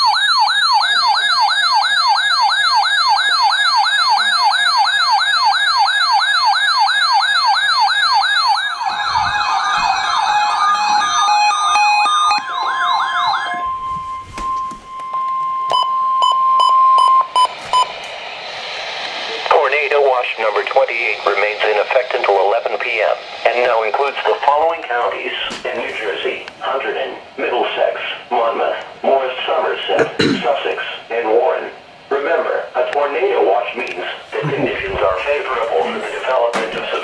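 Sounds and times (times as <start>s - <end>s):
second warbling alarm: 0.0s - 18.0s
warbling electronic alarm: 0.0s - 18.0s.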